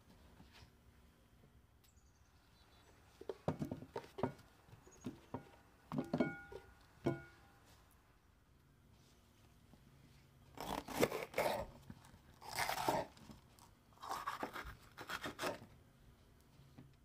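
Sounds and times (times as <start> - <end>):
knife cutting bell pepper: 10.6 - 11.8, 12.4 - 13.2, 14.0 - 15.7.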